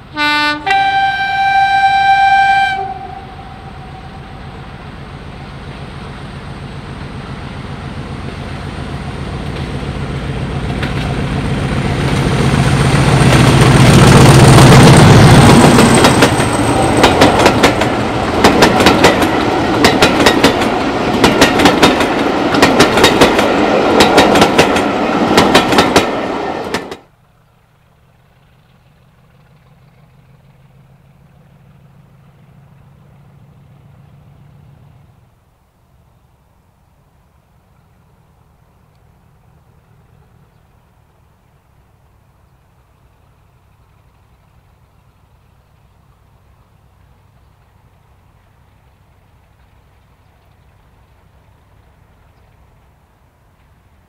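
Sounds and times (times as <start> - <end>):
locomotive horn: 0.0 - 4.7
diesel locomotive engine: 0.0 - 54.0
wheels clicking over rail joints: 4.4 - 35.0.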